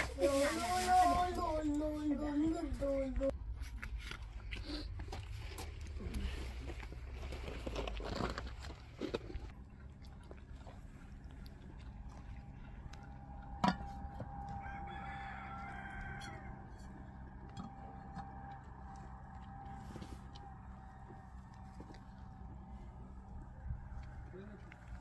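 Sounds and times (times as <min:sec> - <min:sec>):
rooster crowing: 0:13.2 - 0:17.1.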